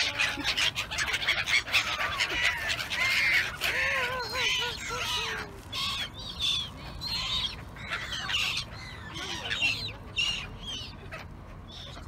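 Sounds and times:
gulls squawking: 0:00.0 - 0:12.0.

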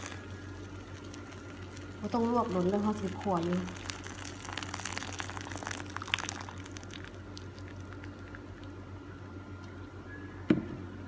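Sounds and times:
water pouring and splashing: 0:00.8 - 0:08.7.

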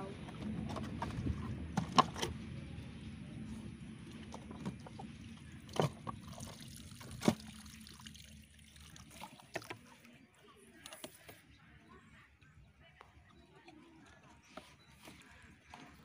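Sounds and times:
water trickling from plastic bottle: 0:04.0 - 0:10.2.

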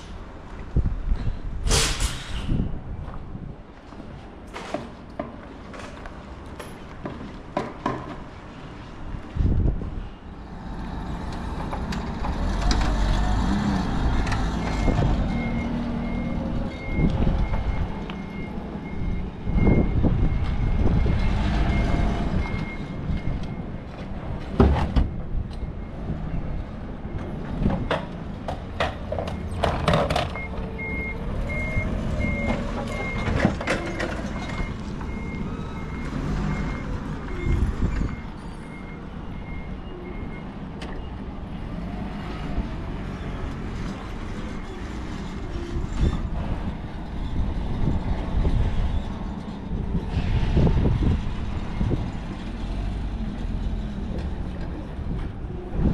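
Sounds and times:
reversing alarm beeping: 0:14.8 - 0:24.0, 0:30.4 - 0:41.2.

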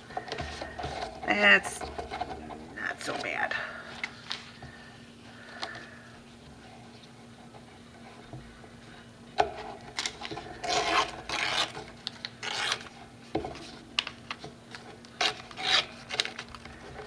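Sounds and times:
paper tearing: 0:10.6 - 0:11.8, 0:12.4 - 0:13.0, 0:15.2 - 0:16.4.

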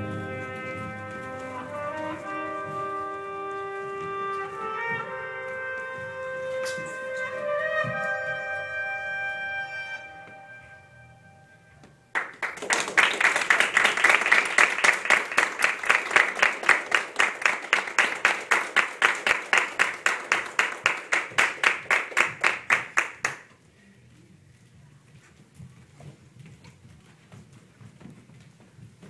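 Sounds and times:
audience applauding: 0:12.1 - 0:23.5.

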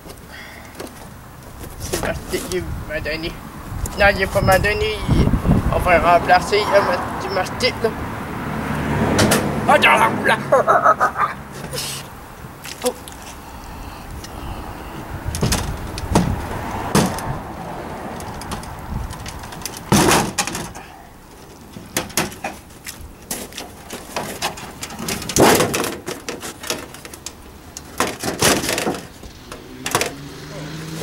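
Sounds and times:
sheet metal bending and crinkling: 0:18.1 - 0:30.1
metal snaps and clatters: 0:21.9 - 0:30.2.

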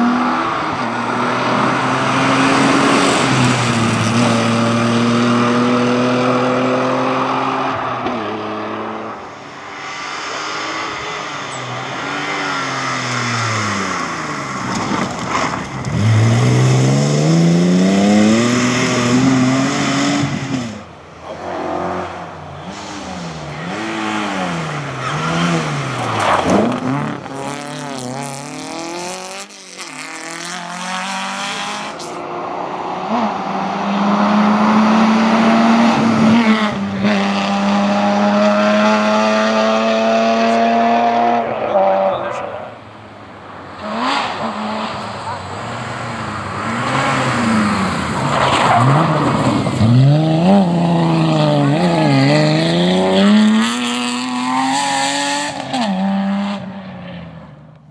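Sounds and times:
rally car engines racing: 0:00.0 - 0:57.9.

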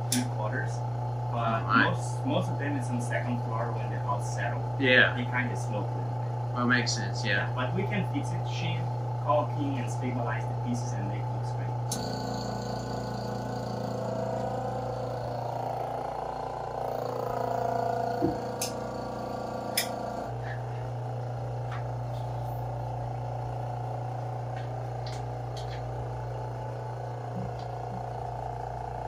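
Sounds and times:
pump humming: 0:11.8 - 0:29.0.

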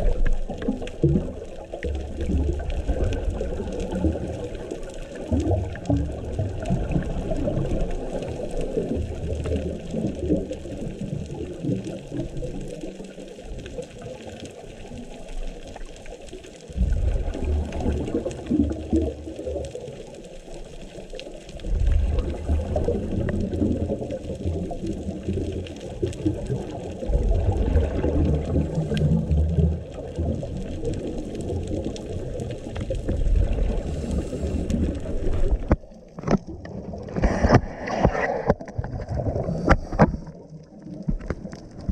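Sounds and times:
exhaled bubbles rumbling: 0:00.0 - 0:41.9
diver breathing through regulator: 0:33.7 - 0:35.3.

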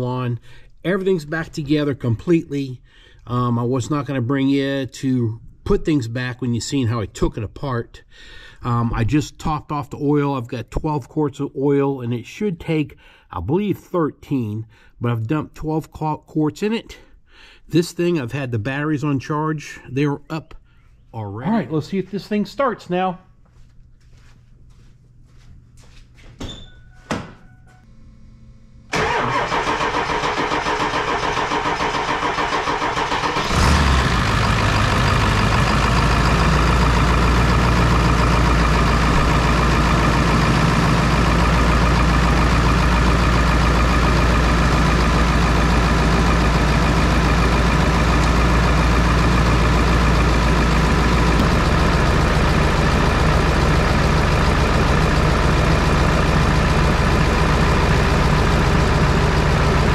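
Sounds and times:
diesel engine idling: 0:28.9 - 0:59.9
starter cranking engine: 0:28.9 - 0:59.9.

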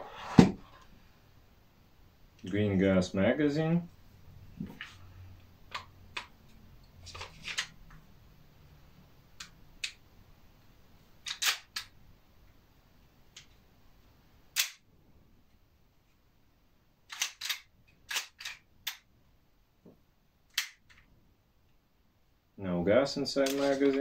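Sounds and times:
airsoft pistol metallic clicks: 0:14.6 - 0:14.8.

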